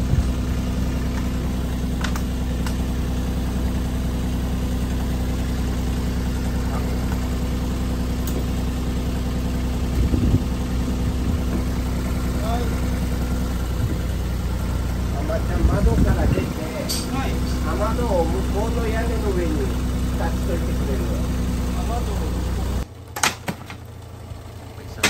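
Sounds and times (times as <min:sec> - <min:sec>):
excavator diesel engine idling: 0:00.0 - 0:25.0
low bump: 0:09.7 - 0:17.2.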